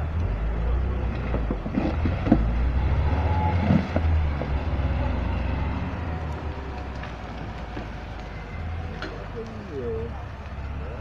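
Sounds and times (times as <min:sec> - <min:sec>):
sharp knocks and cracks: 0:01.1 - 0:02.5.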